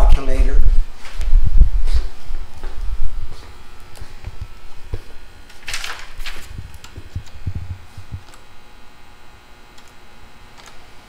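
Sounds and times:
keyboard typing clicks: 6.7 - 8.4, 9.7 - 10.0, 10.6 - 10.8.

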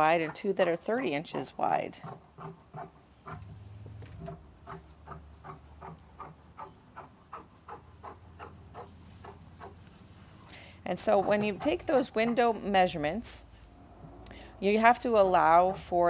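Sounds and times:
low hum: 3.3 - 4.6.

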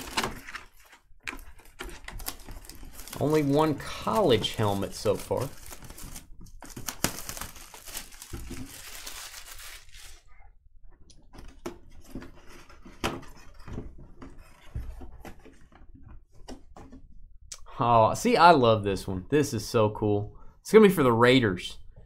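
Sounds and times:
plastic wrap crinkling and tearing: 0.0 - 10.3.

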